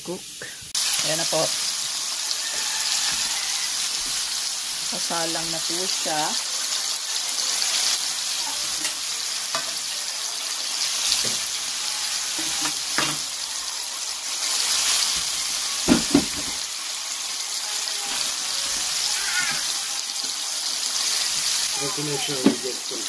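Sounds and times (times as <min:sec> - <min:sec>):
burger patties sizzling on grill: 0:00.0 - 0:23.0.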